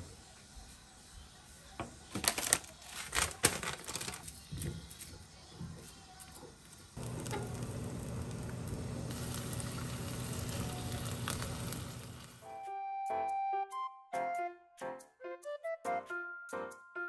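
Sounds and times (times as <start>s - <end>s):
food sizzling in a frying pan: 7.0s - 12.4s.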